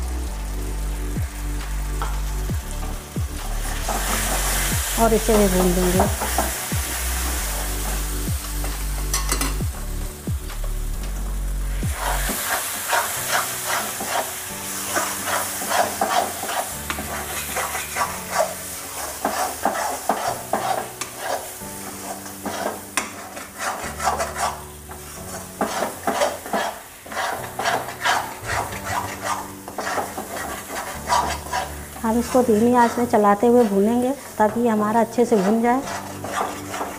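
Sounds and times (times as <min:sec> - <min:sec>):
paste sizzling in oil: 0:00.0 - 0:36.9
spatula scraping metal pan: 0:05.6 - 0:07.9, 0:12.0 - 0:36.9.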